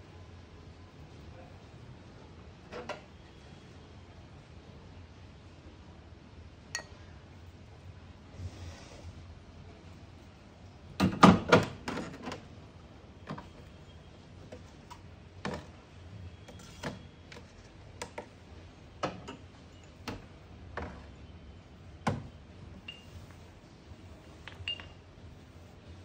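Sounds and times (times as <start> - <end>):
ceramic cups clinking: 24.4 - 25.0.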